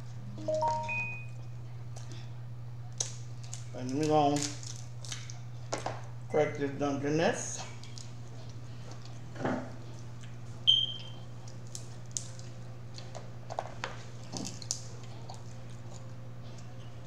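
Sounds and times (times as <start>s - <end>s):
steady low hum: 0.0s - 17.0s
crab shell crunching: 2.9s - 5.9s, 10.0s - 16.8s.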